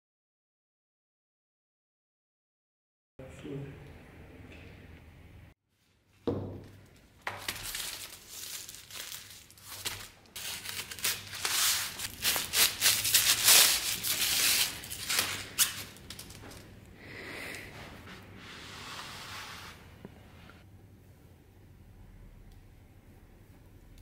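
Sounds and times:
paper crinkling and rustling: 7.2s - 16.8s.

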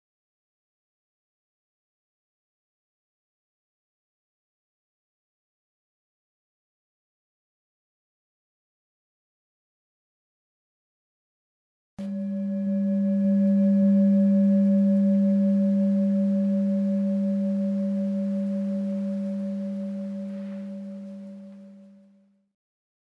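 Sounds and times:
singing bowl ringing: 12.0s - 22.3s.

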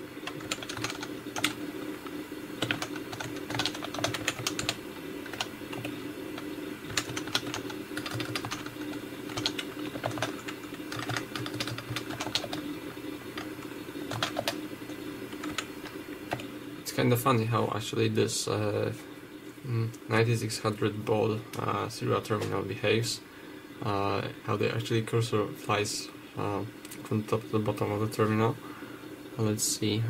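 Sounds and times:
steady low hum: 0.0s - 30.0s
keyboard typing: 0.2s - 12.7s, 13.3s - 16.5s.

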